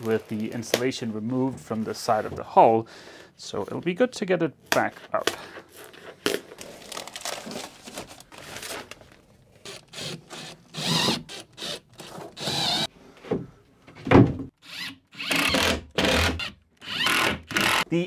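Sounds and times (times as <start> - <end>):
foam panels rustling and scraping: 0.0 - 2.7, 4.8 - 9.5
thump against plywood: 14.0 - 14.5.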